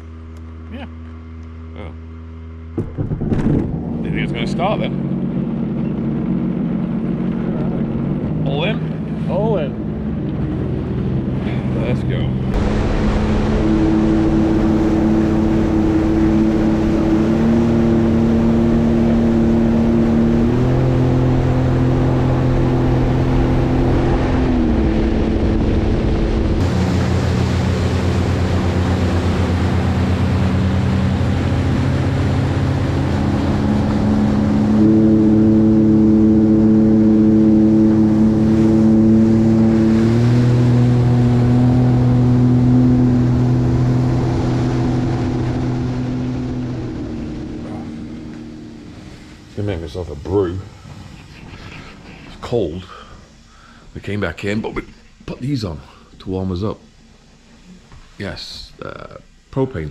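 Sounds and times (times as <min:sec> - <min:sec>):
jet ski engine running: 0:00.0 - 0:59.9
water noise: 0:00.0 - 0:59.9.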